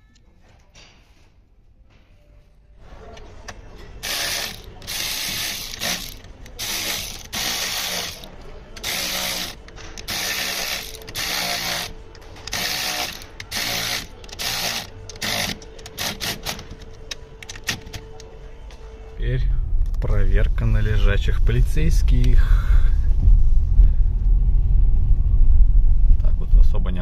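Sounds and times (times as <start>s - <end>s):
electric ratchet wrench running: 4.0s - 16.7s.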